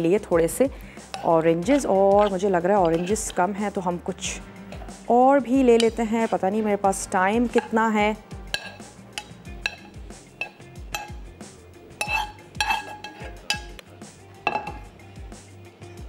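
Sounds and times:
background music with low beat: 0:00.0 - 0:16.0
metal utensils clinking on dishes: 0:01.2 - 0:03.5, 0:07.5 - 0:07.9, 0:08.5 - 0:11.2, 0:12.0 - 0:13.8, 0:14.4 - 0:14.9.

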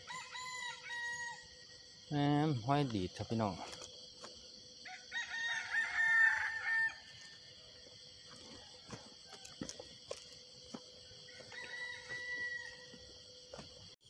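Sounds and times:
rooster crowing: 0:00.0 - 0:01.7, 0:04.8 - 0:07.6, 0:08.3 - 0:10.0, 0:11.2 - 0:13.2
soft footsteps: 0:07.1 - 0:14.0.

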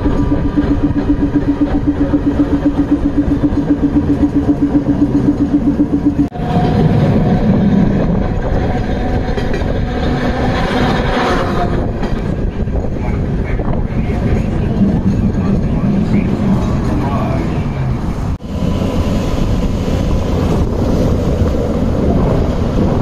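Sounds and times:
rapid pulsing hum: 0:00.0 - 0:10.1
passing streetcar rumble and whine: 0:00.0 - 0:23.0
streetcar running noise: 0:00.0 - 0:23.0.

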